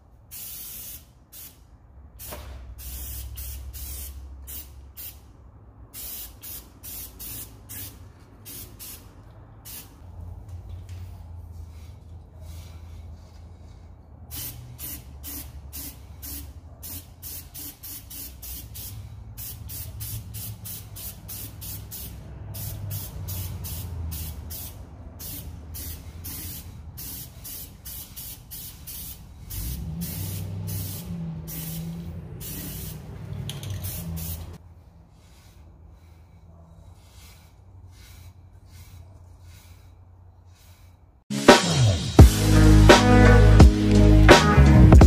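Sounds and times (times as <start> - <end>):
aerosol spray can hissing: 14.3 - 34.6.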